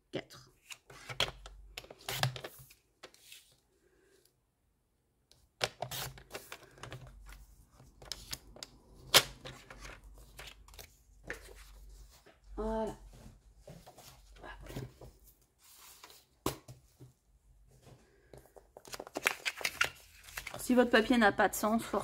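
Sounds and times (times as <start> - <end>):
paper shuffling: 18.1 - 20.7.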